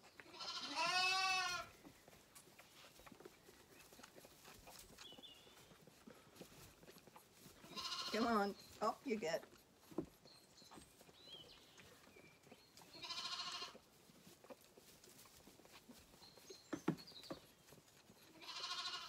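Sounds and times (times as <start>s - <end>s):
lambs bleating: 0.2s - 1.8s, 7.6s - 8.5s, 12.9s - 13.9s, 18.3s - 19.0s.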